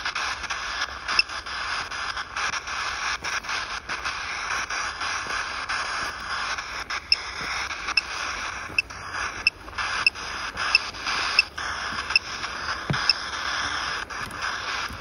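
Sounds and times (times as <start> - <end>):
static hiss from phone speaker: 0.0 - 15.0
clicks: 6.9 - 15.0.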